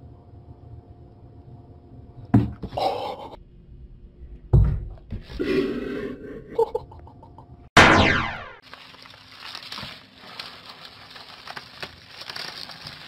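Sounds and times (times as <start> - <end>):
falling electronic sweep: 7.8 - 8.6.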